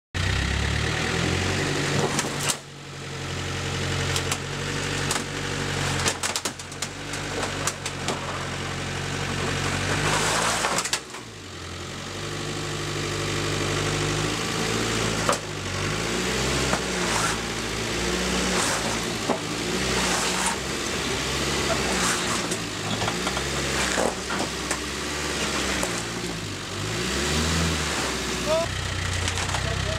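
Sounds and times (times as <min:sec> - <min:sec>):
diesel engine revving: 0:00.2 - 0:29.9
car bonnet cracking and crunching: 0:05.0 - 0:08.5, 0:29.1 - 0:29.8.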